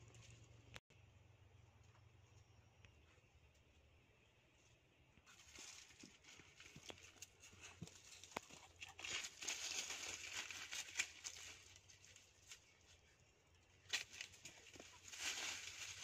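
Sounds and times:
dry leaves rustling under paws: 5.3 - 13.0, 13.9 - 16.0.

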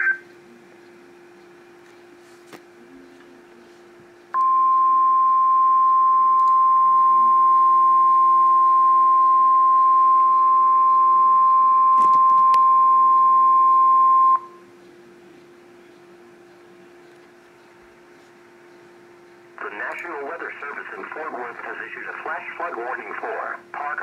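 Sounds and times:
loud steady alarm tone: 4.4 - 14.6.

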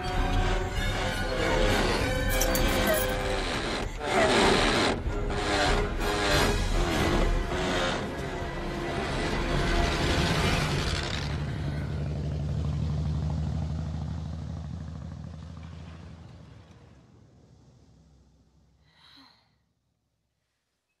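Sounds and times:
truck engine passing by: 6.0 - 18.7
breathy sigh: 18.8 - 19.7.

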